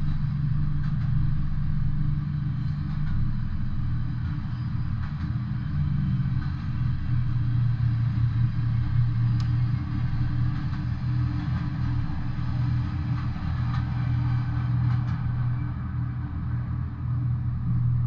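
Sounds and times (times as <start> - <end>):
freight train cars rumbling: 0.0 - 18.0.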